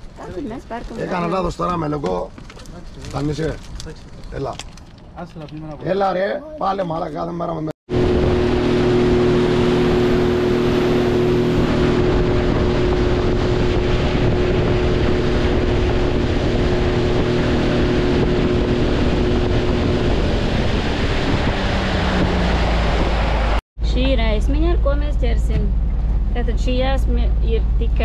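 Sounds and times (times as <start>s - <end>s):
water rushing: 7.9s - 23.6s
wind on microphone: 7.9s - 23.6s
motorboat engine running: 7.9s - 28.0s.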